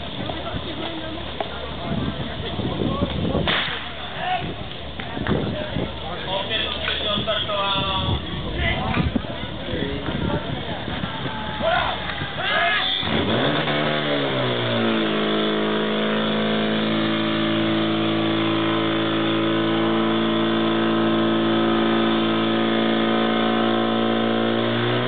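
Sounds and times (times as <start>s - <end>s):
pump engine revving: 12.8s - 25.0s.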